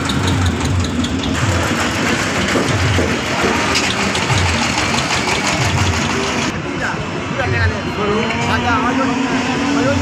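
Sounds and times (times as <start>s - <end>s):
vehicle engine idling: 0.0s - 6.6s.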